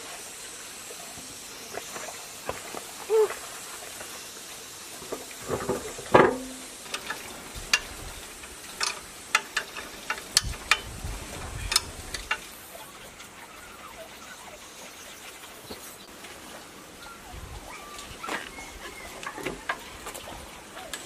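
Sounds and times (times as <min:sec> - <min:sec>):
metal clank ringing: 0:06.2 - 0:06.8
wrench clinking on bolts: 0:08.8 - 0:11.0.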